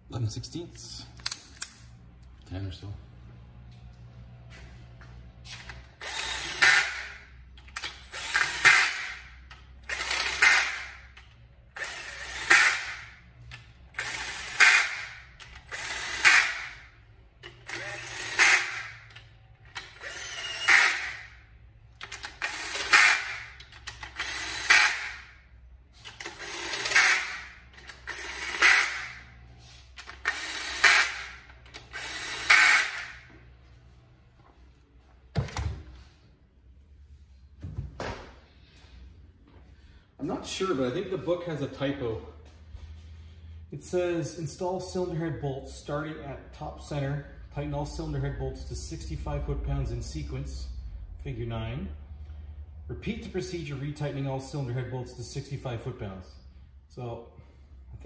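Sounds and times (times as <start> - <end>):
socket ratchet clicking: 17.4 - 21.3, 21.9 - 25.3, 26.0 - 29.2, 30.0 - 33.2.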